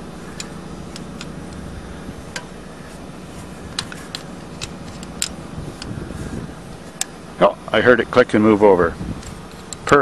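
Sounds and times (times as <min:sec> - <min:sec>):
wrench metal clicks: 0:00.3 - 0:01.6, 0:03.7 - 0:05.9.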